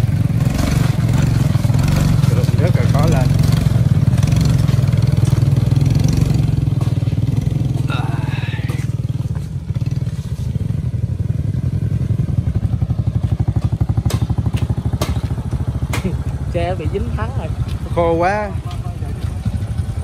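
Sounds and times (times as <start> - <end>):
motorcycle engine running: 0.0 - 20.0
sharp knocks: 13.6 - 16.2.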